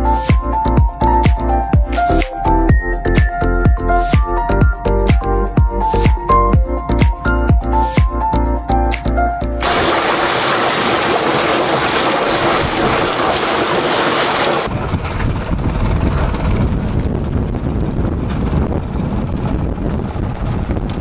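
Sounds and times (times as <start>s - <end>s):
water rushing past hull: 9.6s - 14.8s
wind buffeting microphone: 9.7s - 21.0s.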